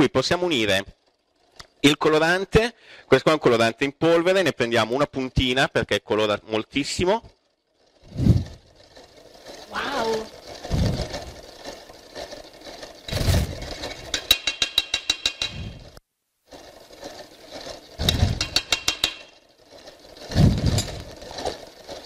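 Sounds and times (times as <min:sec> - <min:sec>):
fast rattling clicks: 0:06.8 - 0:22.0.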